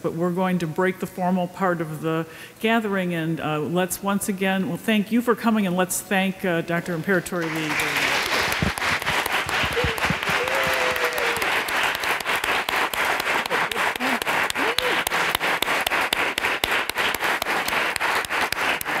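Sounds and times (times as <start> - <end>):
audience applauding: 7.4 - 19.0.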